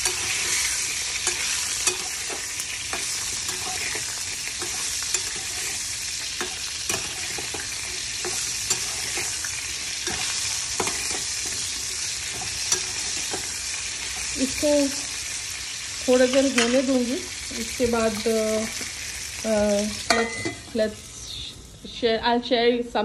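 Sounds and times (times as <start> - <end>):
spatula scraping and stirring: 0.0 - 14.4
vegetables sizzling in a pan: 0.0 - 22.6.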